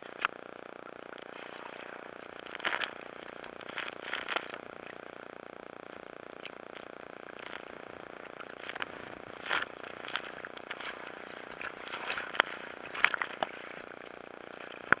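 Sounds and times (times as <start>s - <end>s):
steady hiss: 0.0s - 15.0s
small waves splashing: 1.2s - 15.0s.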